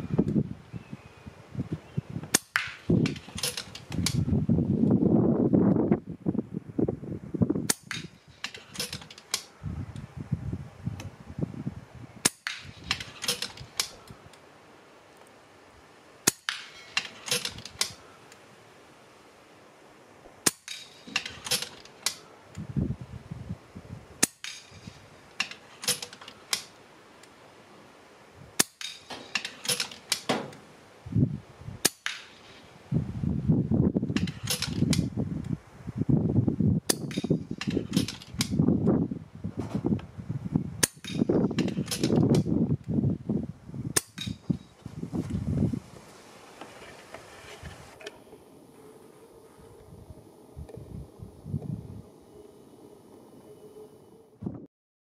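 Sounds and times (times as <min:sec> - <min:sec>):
wind rumbling on microphone: 0:00.0 - 0:14.4, 0:22.5 - 0:25.2, 0:31.0 - 0:31.9, 0:32.6 - 0:54.7
air rifle shots: 0:12.2 - 0:14.0, 0:16.2 - 0:18.0.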